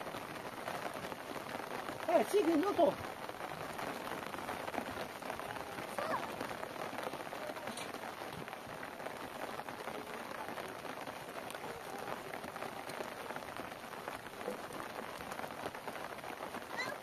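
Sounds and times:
rain falling: 0:00.0 - 0:17.0.

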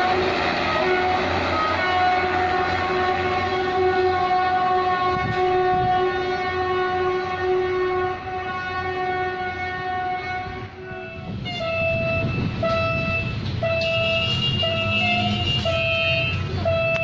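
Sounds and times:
locomotive horn steady chord: 0:00.0 - 0:17.0
street traffic noise: 0:00.0 - 0:17.0
locomotive horn short blasts: 0:00.1 - 0:17.0.

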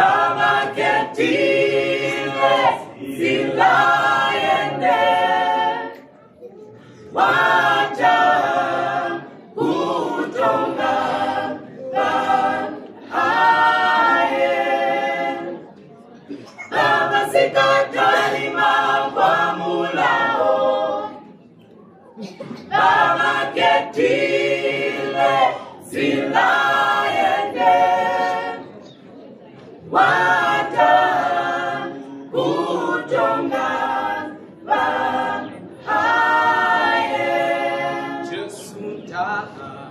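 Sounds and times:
group singing unaccompanied: 0:00.0 - 0:06.3, 0:06.9 - 0:21.4, 0:22.4 - 0:39.9
singers breathing: 0:06.6 - 0:07.1.

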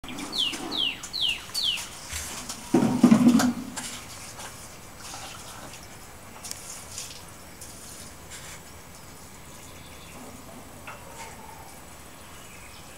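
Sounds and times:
bird chirp: 0:00.0 - 0:02.1, 0:09.0 - 0:10.3, 0:11.3 - 0:12.9.

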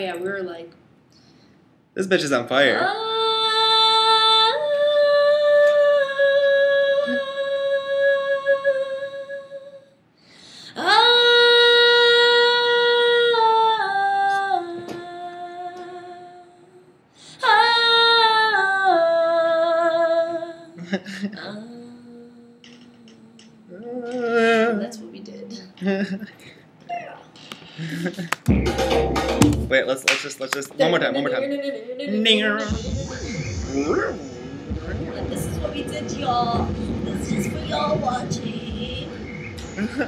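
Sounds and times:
woman singing long held notes: 0:03.0 - 0:09.9, 0:10.7 - 0:20.8, 0:21.4 - 0:25.1, 0:34.9 - 0:39.3.

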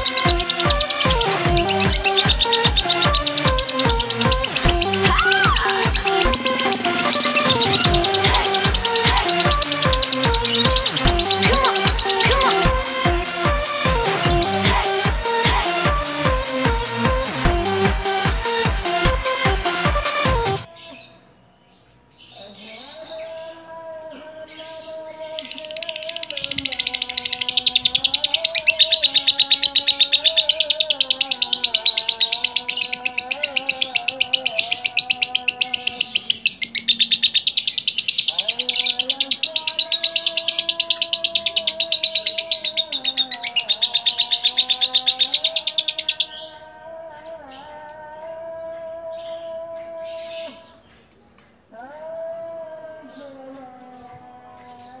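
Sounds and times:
lovebird chattering trill: 0:00.0 - 0:17.4, 0:25.2 - 0:46.5.

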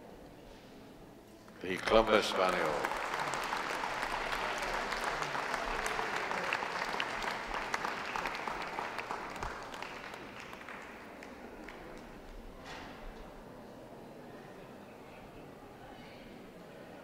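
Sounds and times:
audience applauding: 0:01.6 - 0:12.1.

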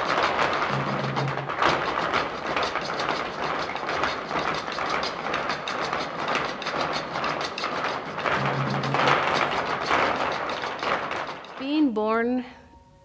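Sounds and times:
dancers stamping on stage floor: 0:00.0 - 0:11.6.

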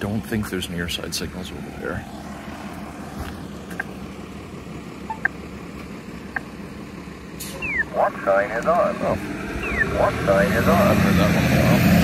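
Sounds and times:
road traffic rumble: 0:00.0 - 0:12.0
short high chirps: 0:05.1 - 0:05.3.

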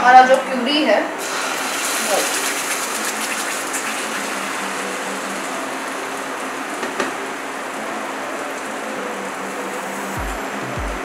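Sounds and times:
puree sizzling in a pan: 0:01.2 - 0:10.6
knock: 0:06.8 - 0:07.2.

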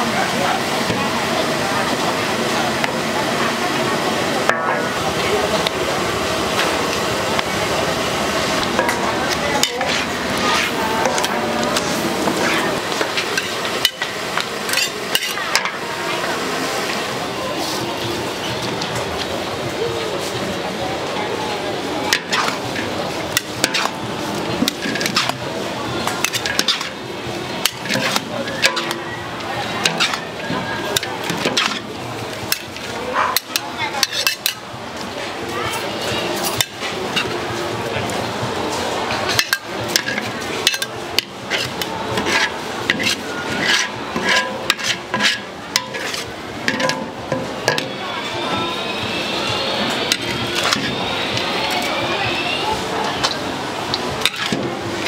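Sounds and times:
steady noisy background: 0:00.0 - 0:55.0
metal utensils clinking on a pan: 0:08.7 - 0:15.8, 0:22.1 - 0:24.0, 0:24.6 - 0:25.4, 0:26.0 - 0:27.0, 0:27.6 - 0:29.1, 0:29.7 - 0:34.6, 0:39.3 - 0:48.0, 0:54.2 - 0:54.7.

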